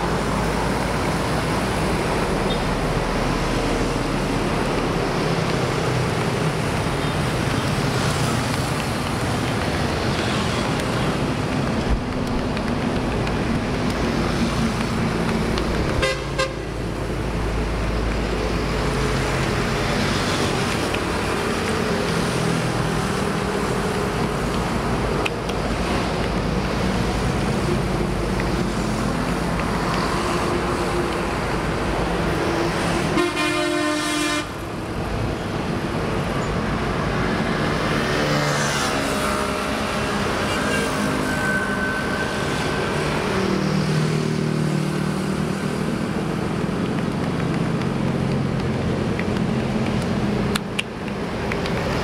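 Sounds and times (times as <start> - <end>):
highway traffic passing: 0.0 - 52.0
vehicle horn: 16.0 - 16.6, 33.1 - 34.5.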